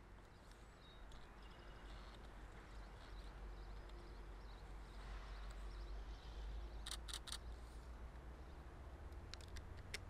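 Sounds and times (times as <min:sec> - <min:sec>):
sharp high-pitched clicks: 0:06.8 - 0:07.4.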